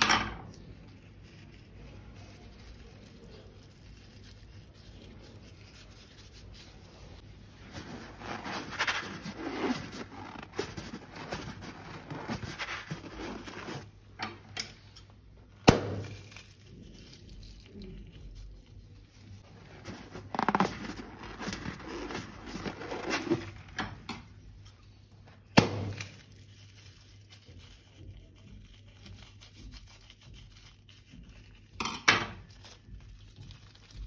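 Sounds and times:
slime squelching and crackling: 15.7 - 23.6.

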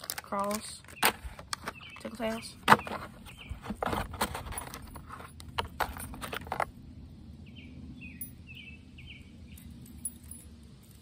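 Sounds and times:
plastic packaging rustling and clicking: 0.0 - 6.7
bird chirps: 0.8 - 3.7, 7.4 - 9.8.

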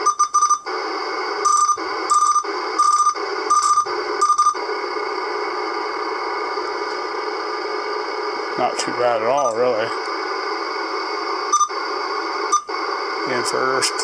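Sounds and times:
short electronic beeps: 0.0 - 0.6, 1.5 - 4.6, 11.5 - 11.7
radio static hiss: 0.0 - 14.0.

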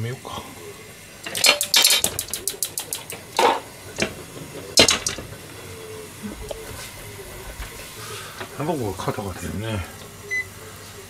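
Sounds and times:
metal utensils clattering: 1.2 - 4.2, 4.8 - 5.4.

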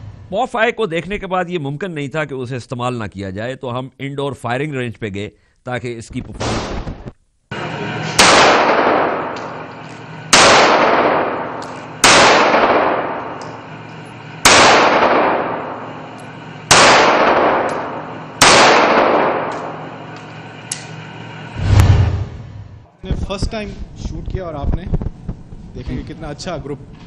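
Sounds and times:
pistol shots echoing indoors: 7.5 - 21.5.

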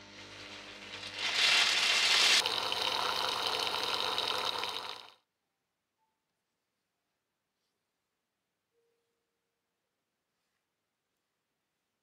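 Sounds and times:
blender motor blending nuts: 0.0 - 5.2.

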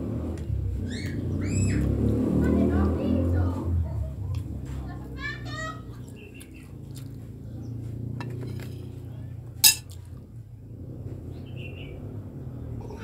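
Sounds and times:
glass clink: 9.6 - 9.8
tableware clicks: 9.6 - 9.9.

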